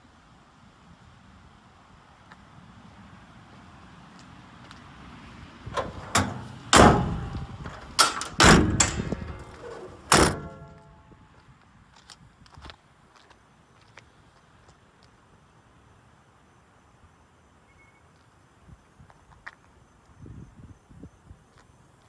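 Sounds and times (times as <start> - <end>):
metal doors clanking and banging: 5.7 - 11.0
metallic ringing: 5.8 - 11.1.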